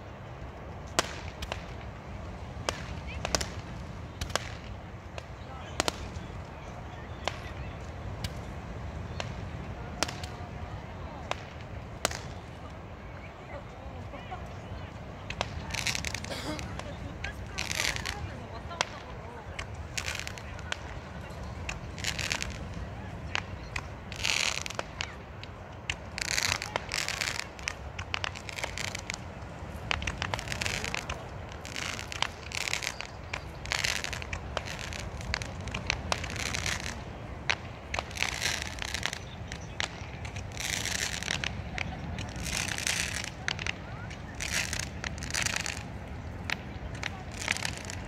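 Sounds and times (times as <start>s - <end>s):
fireworks popping and crackling: 0.0s - 48.0s
surf washing: 0.0s - 48.0s
firework hissing whooshes: 26.0s - 48.0s.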